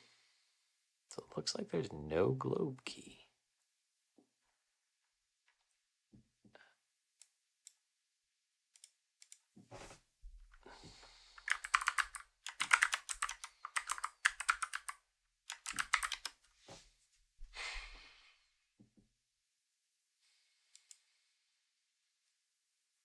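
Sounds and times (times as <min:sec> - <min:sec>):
typing on computer keyboard: 0:11.4 - 0:16.4.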